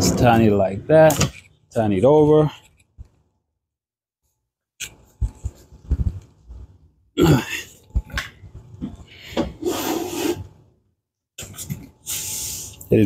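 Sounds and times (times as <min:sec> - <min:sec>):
person grunting: 0:07.2 - 0:07.7.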